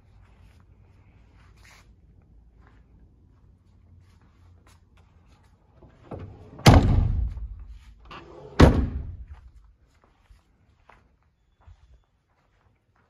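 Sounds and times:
door rattle: 6.1 - 9.2
car doors slamming: 6.5 - 7.5, 8.6 - 9.2.

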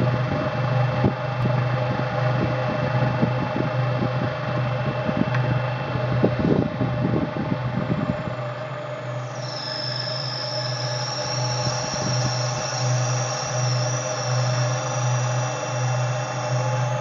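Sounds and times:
electric motor hum: 1.4 - 17.0
spinning cutter whirr: 8.6 - 17.0.

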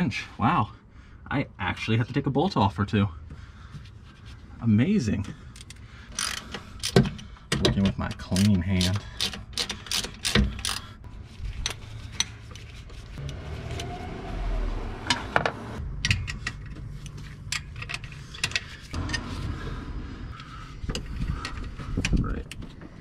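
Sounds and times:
wrenches clinking against metal: 5.5 - 10.9.

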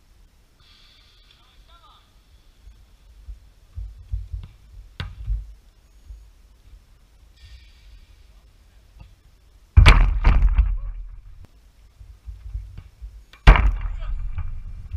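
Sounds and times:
football thumping goal net: 9.8 - 11.1, 12.7 - 14.6.

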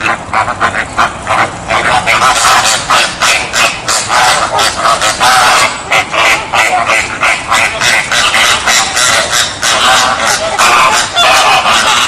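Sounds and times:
flamingos honking: 0.0 - 12.0.

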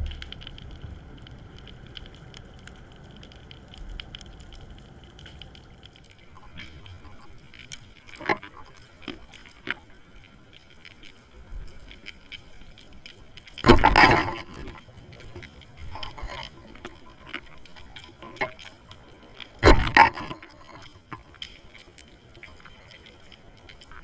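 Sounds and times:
faint underwater clicks crackling: 0.0 - 24.0
noisy underwater rushes: 13.6 - 21.1.

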